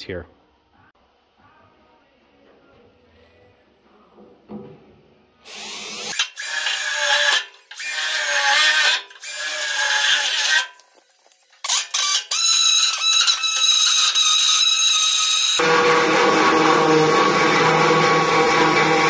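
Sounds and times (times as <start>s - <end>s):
cordless drill boring through sheet steel: 5.4s - 10.8s, 11.6s - 19.0s
pneumatic air saw burst: 5.4s - 10.8s.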